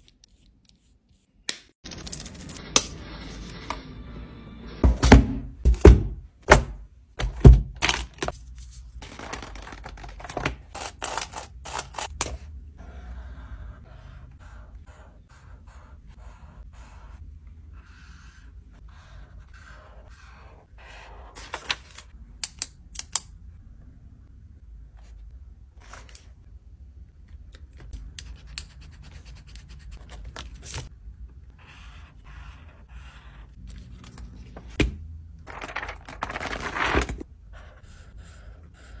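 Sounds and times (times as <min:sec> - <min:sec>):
pen scratching on paper: 0:12.8 - 0:21.4, 0:31.6 - 0:33.5, 0:37.6 - 0:39.0.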